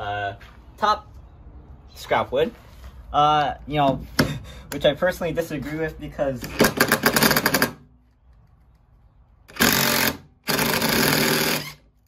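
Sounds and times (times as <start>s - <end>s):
impact driver rattling: 6.4s - 7.9s, 9.5s - 11.9s.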